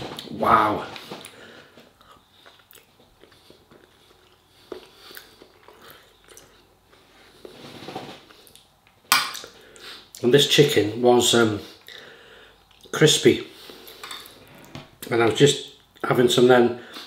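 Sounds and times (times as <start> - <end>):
person chewing crispy food: 2.0 - 7.0.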